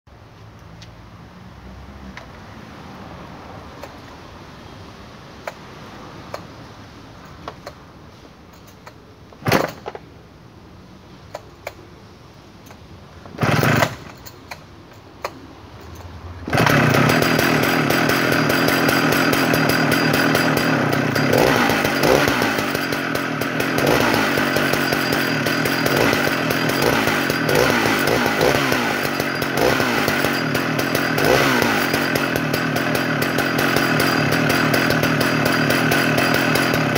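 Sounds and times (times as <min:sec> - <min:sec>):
chainsaw starting clicks: 0:11.3 - 0:11.8, 0:12.6 - 0:36.9
chainsaw engine running: 0:13.4 - 0:14.3, 0:16.4 - 0:36.9
chainsaw engine bursts: 0:13.4 - 0:14.6, 0:16.4 - 0:36.9.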